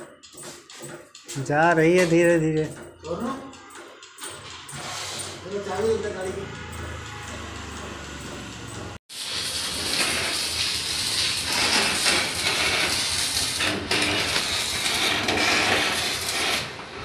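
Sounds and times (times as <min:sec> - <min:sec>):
arc welding hiss: 0:09.1 - 0:16.8.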